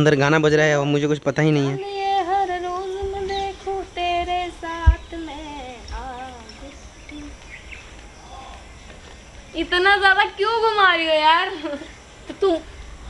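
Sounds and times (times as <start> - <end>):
woman singing unaccompanied: 1.8 - 8.6, 9.5 - 11.8
low thump: 4.1 - 6.1.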